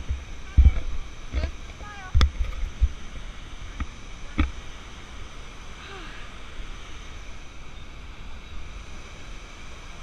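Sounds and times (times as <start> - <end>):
waterfall roaring: 0.0 - 10.0
wind rumbling on microphone: 0.0 - 10.0.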